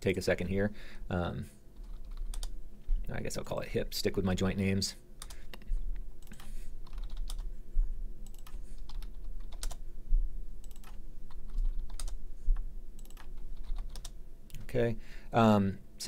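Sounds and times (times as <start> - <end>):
typing on computer keyboard: 1.8 - 2.5, 6.2 - 7.4, 8.3 - 9.8, 10.6 - 12.2, 13.0 - 14.1.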